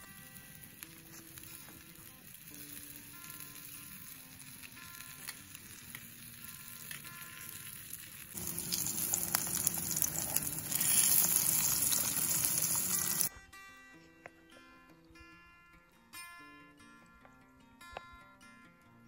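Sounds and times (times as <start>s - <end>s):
sausage sizzling in frying pan: 0.0s - 13.3s
faint background music: 0.0s - 19.0s.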